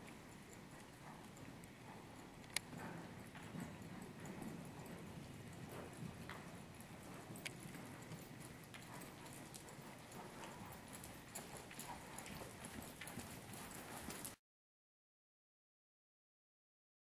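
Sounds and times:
faint hoofbeats on sand: 0.0s - 14.4s.

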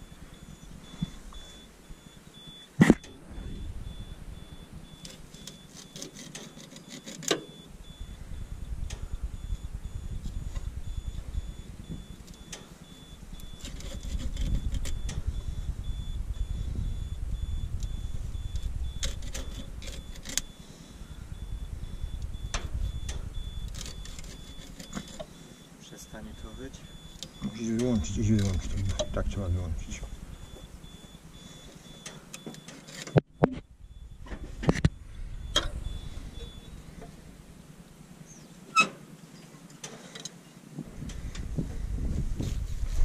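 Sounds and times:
fast electronic beeping: 0.0s - 32.5s
low uneven rumble: 3.1s - 5.4s, 7.6s - 25.5s, 26.1s - 32.0s, 33.6s - 38.7s, 40.7s - 43.0s
scattered clicks: 13.4s - 15.2s, 17.8s - 20.6s, 22.0s - 25.3s, 26.6s - 30.7s.

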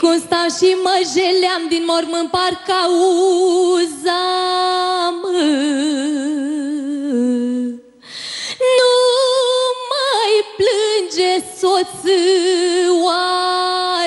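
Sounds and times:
woman singing with vibrato: 0.0s - 14.0s
woman breathing: 7.9s - 8.6s.

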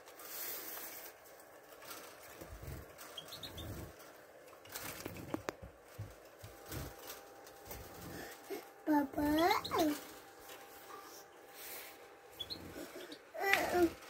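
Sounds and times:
bird fluttering wings in cage: 0.2s - 8.1s
faint high bird chirps: 12.3s - 13.2s.

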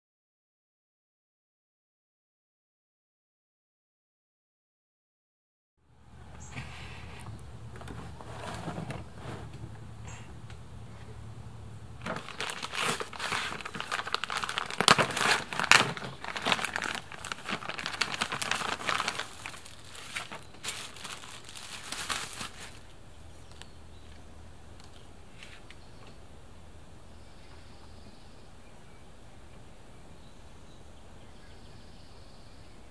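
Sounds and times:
plastic bag crinkling: 12.0s - 23.6s.

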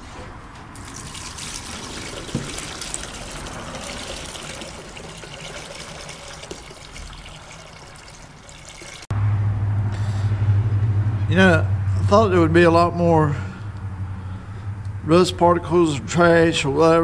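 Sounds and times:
liquid trickling into a jug: 0.8s - 9.1s.

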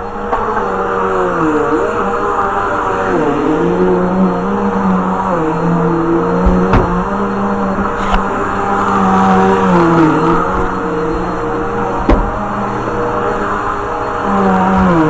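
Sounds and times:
vacuum cleaner motor humming: 0.0s - 15.0s
knocks: 6.4s - 7.1s, 12.0s - 12.5s.

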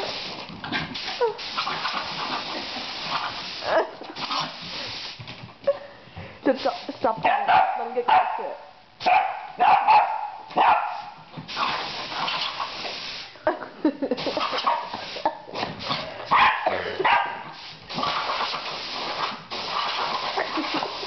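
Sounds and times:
dog barking and yipping: 7.2s - 11.2s, 14.5s - 15.0s, 16.3s - 17.5s
compressed air hissing: 17.6s - 21.0s.

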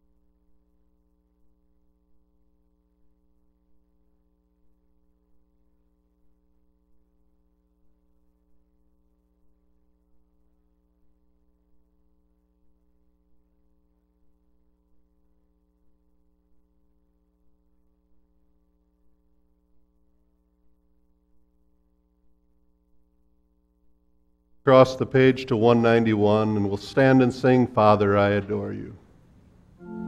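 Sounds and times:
electrical mains hum: 15.3s - 30.0s
faint regular pulses: 24.7s - 30.0s.

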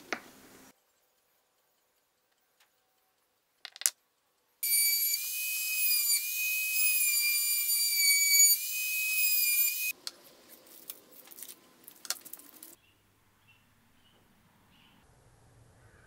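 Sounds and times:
router whining: 4.6s - 9.9s.

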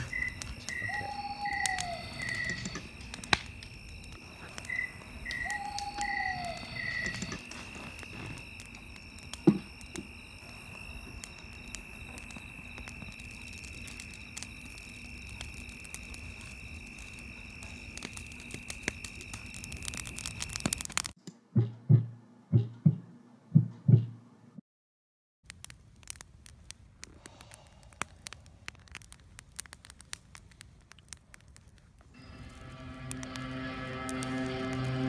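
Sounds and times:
muffled heartbeat thuds: 21.6s - 24.2s
high-pitched drone: 32.2s - 35.0s.

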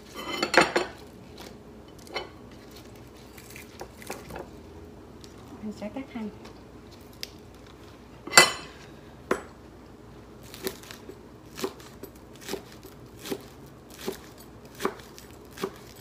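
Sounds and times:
knife chopping on cutting board: 10.5s - 16.0s.

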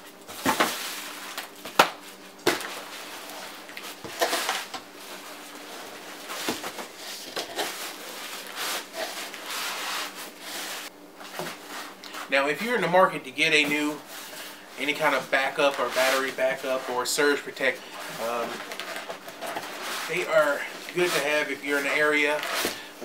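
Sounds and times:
cardboard rubbing and scraping: 3.0s - 12.4s, 14.1s - 17.0s, 17.6s - 22.8s.

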